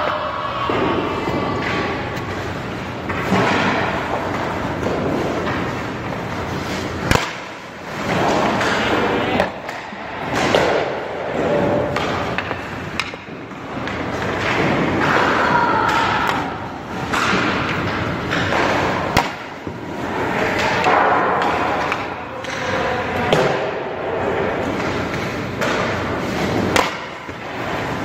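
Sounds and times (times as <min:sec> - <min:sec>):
hockey pucks cracking off sticks: 0:00.0 - 0:28.0
skate blades scraping ice: 0:01.6 - 0:16.3, 0:24.6 - 0:28.0.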